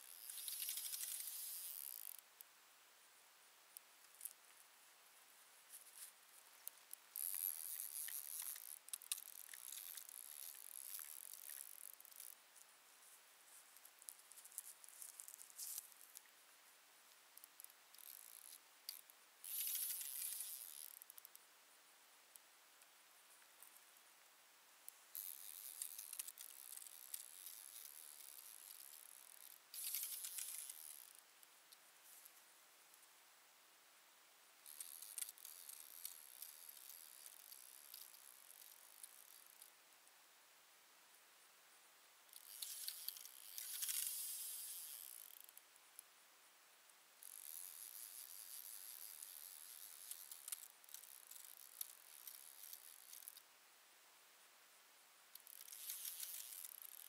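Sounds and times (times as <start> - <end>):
fishing reel clicking: 0.0 - 2.2, 6.9 - 12.4, 17.4 - 21.4, 25.2 - 31.2, 34.6 - 39.6, 42.3 - 45.6, 47.2 - 53.4, 55.4 - 57.0
small ticks: 0.0 - 2.6, 3.7 - 4.8, 5.6 - 16.4, 17.0 - 21.5, 22.3 - 24.1, 24.8 - 33.1, 34.6 - 39.8, 42.3 - 46.1, 47.2 - 53.5, 55.3 - 57.0.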